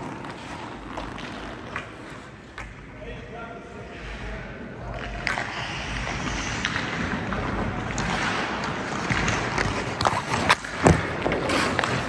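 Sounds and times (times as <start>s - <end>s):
ice skate blades scraping ice: 0.0s - 2.6s, 5.2s - 12.0s.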